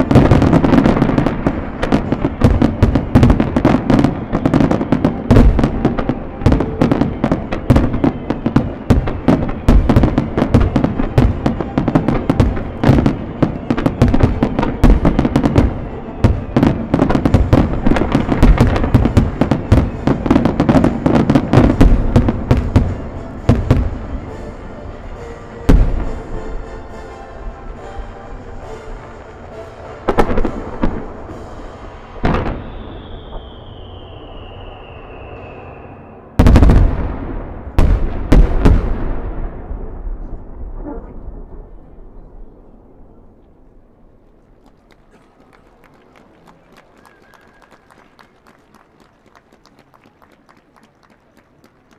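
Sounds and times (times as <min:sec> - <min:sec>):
music: 0:00.0 - 0:33.1
fireworks bangs and crackling: 0:00.0 - 0:51.9
loud firework boom: 0:36.4 - 0:42.2.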